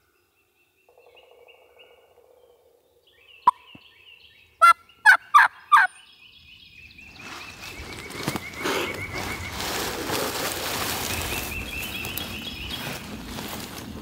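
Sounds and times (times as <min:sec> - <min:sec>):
songbirds trilling: 0:00.0 - 0:14.0
turkey calling: 0:04.6 - 0:06.1
rustling: 0:07.2 - 0:14.0.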